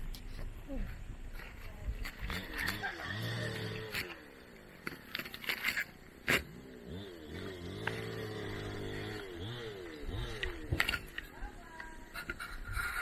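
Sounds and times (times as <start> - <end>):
vehicle engine revving: 2.1 - 4.5, 6.2 - 11.4.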